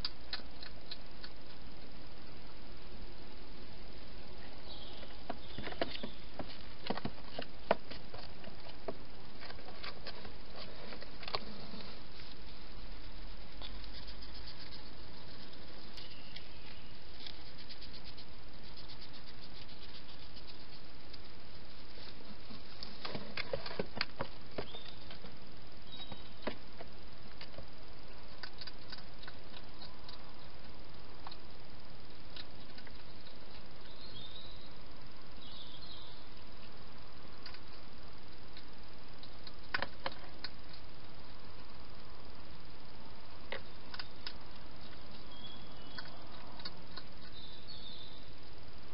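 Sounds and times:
hedgehog crunching food: 0.0s - 1.9s, 6.4s - 24.9s, 28.2s - 31.5s, 32.3s - 34.1s, 43.5s - 47.8s
steady hiss: 0.0s - 48.9s.

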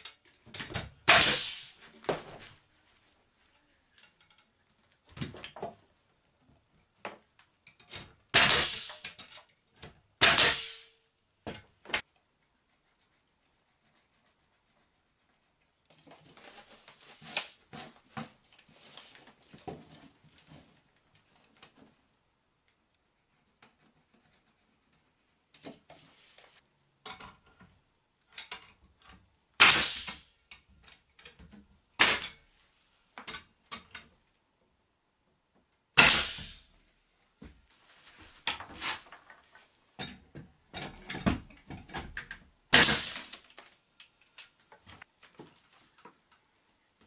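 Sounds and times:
air nail gun firing: 1.0s - 1.8s, 8.3s - 9.2s, 10.2s - 10.9s, 29.6s - 30.3s, 32.0s - 32.4s, 36.0s - 36.7s, 42.7s - 43.4s
pencil scratching: 12.4s - 15.8s, 23.0s - 25.6s.

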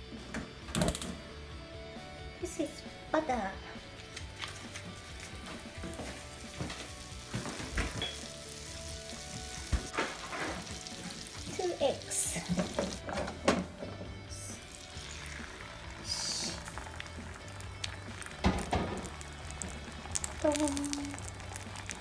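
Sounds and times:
egg sizzling in hot butter: 4.6s - 13.0s, 14.5s - 22.0s
butter sizzling in frying pan: 5.0s - 13.0s, 14.5s - 22.0s.

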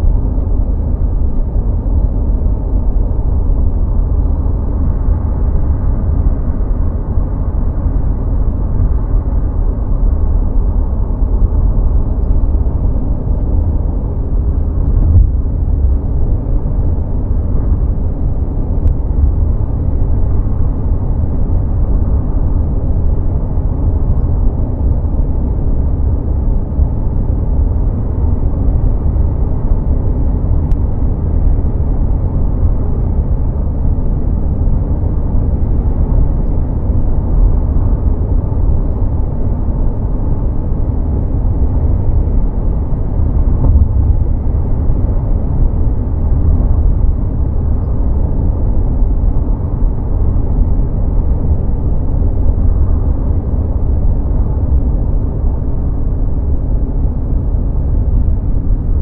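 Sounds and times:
car engine hum: 0.0s - 59.0s
road and tyre noise: 0.0s - 59.0s.

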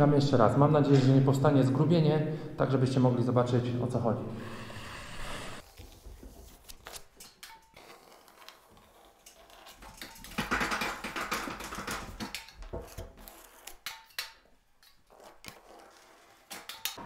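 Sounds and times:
taping knife scraping: 6.4s - 10.1s, 12.7s - 14.2s, 14.8s - 17.0s.

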